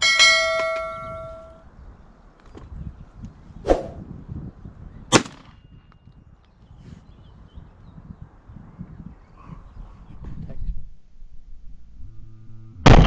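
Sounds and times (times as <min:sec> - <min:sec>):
bell-like ding: 0:00.0 - 0:01.6
shotgun shots: 0:05.1 - 0:05.5.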